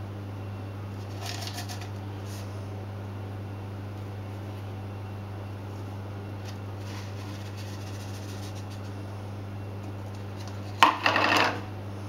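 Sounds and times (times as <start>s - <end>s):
steady low hum: 0.0s - 12.0s
salt rustling on metal tray: 1.0s - 2.5s, 6.4s - 9.0s.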